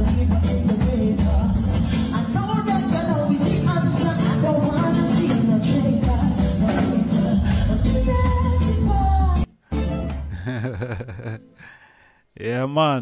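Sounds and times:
man singing into a microphone: 0:00.0 - 0:02.9
bass guitar: 0:00.0 - 0:10.5
drum kit: 0:00.0 - 0:10.6.

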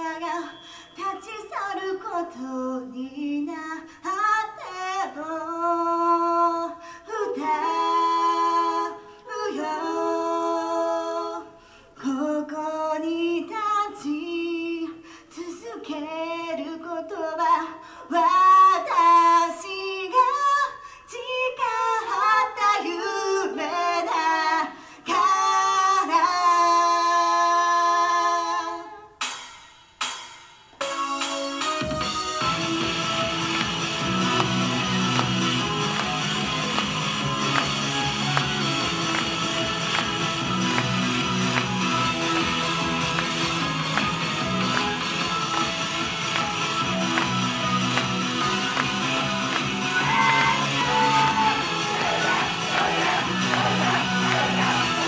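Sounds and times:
women singing a cappella: 0:00.0 - 0:29.1.

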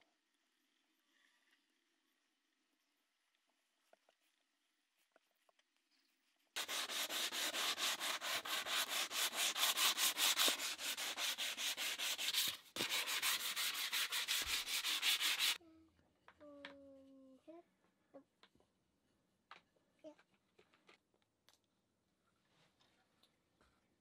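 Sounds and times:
sandpaper rubbing on wood: 0:06.6 - 0:15.6.

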